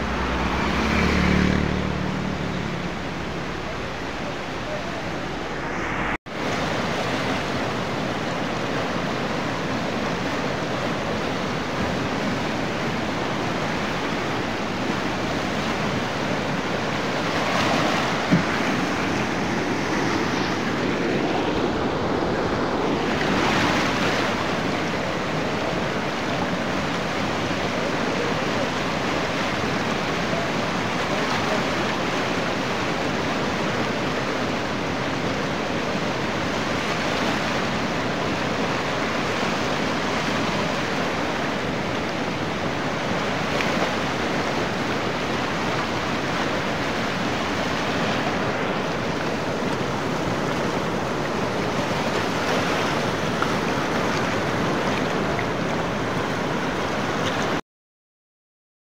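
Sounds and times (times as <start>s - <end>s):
river rushing over rocks: 0.0s - 57.6s.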